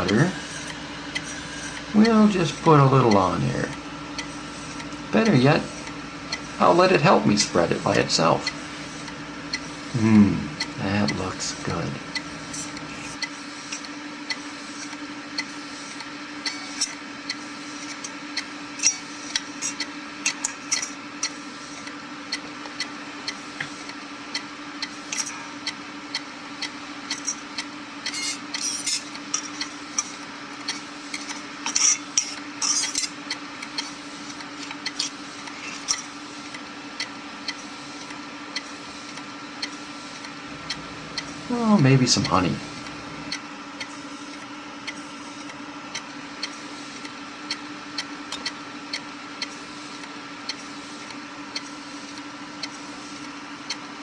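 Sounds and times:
hard drive head clicking: 0.0 - 9.9
spindle motor humming: 0.0 - 54.0.

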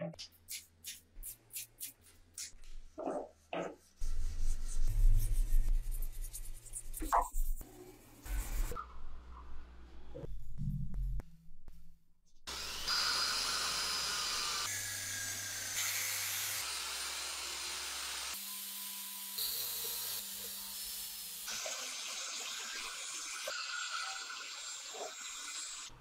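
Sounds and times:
angle grinder polishing: 12.5 - 25.9.

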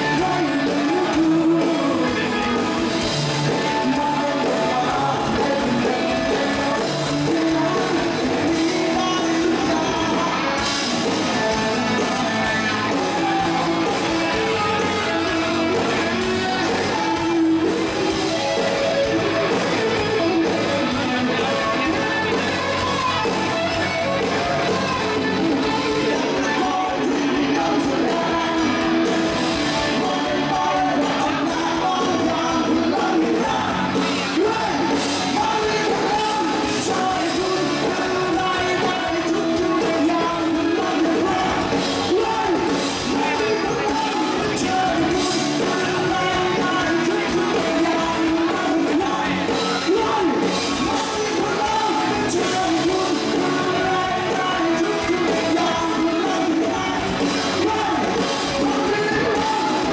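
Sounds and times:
drums: 0.0 - 59.9
electric guitar: 0.0 - 59.9
singing: 0.0 - 59.9.

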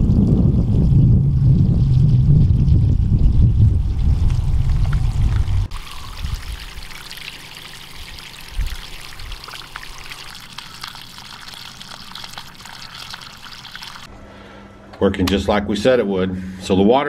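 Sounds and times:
loud low rumble: 0.0 - 5.7
water gushing into a puddle: 0.0 - 14.1.

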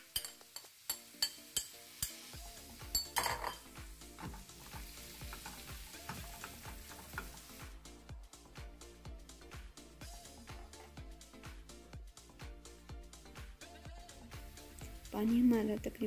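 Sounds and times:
food sizzling: 0.0 - 16.0
spatula scraping a pan: 3.4 - 7.4
spatula tapping a pan: 4.2 - 7.4.

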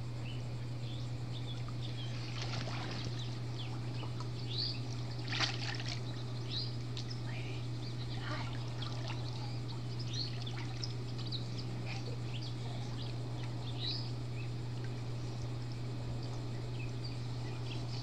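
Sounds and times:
birds chirping: 0.0 - 18.0
steady low hum: 0.0 - 18.0
water splashing as person wades: 2.2 - 3.4, 4.9 - 6.1.

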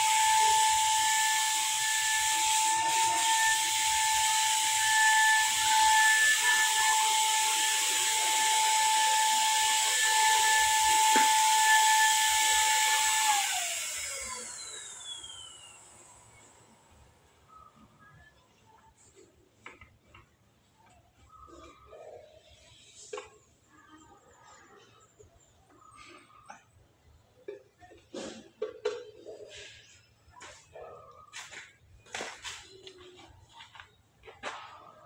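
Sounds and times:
spray gun motor whine: 0.0 - 16.8.

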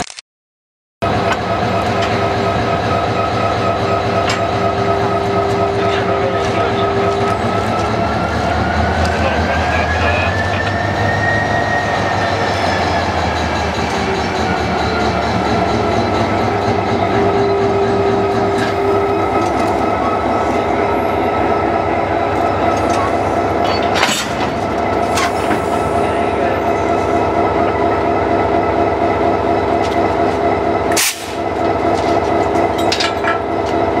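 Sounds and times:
diesel locomotive engine idling: 1.0 - 34.0.

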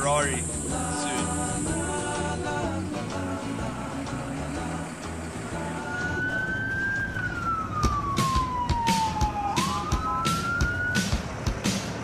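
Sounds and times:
fire engine siren wailing: 5.7 - 11.4.

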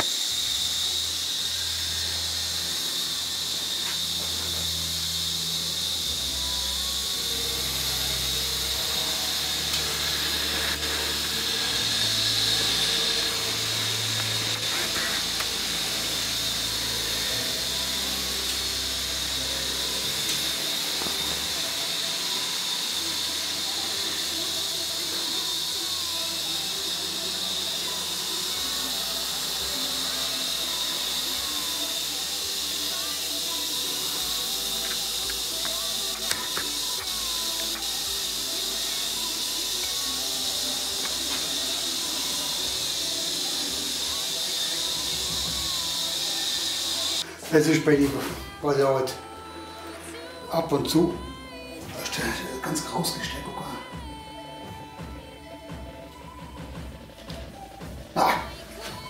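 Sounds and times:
low motor hum: 0.0 - 47.2
model train whine: 0.0 - 57.8.

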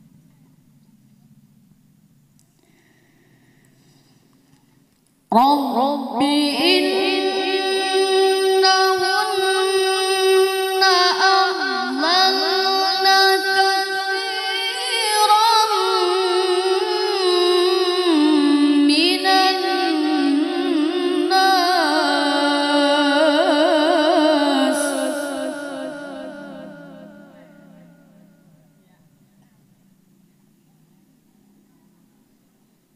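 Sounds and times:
boy reciting melodically into microphone: 4.0 - 29.6.

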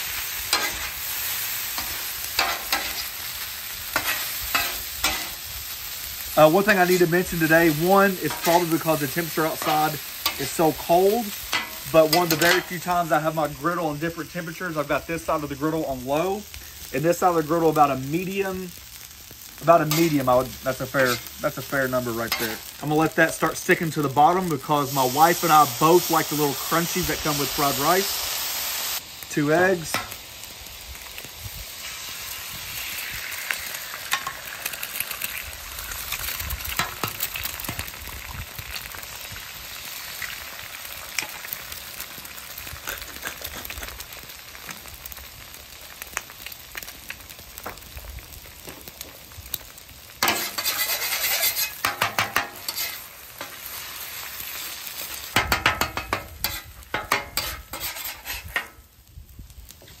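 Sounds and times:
eggs sizzling on griddle: 0.0 - 60.0
metal spatulas scraping and chopping: 1.8 - 3.1, 4.0 - 5.4, 11.5 - 12.7, 19.9 - 20.1, 50.2 - 53.6, 55.4 - 58.7.

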